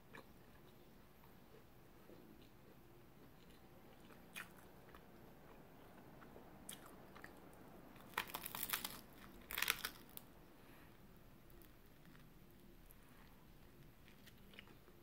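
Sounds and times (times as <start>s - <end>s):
person chewing fried egg: 8.0s - 10.2s, 13.2s - 15.0s.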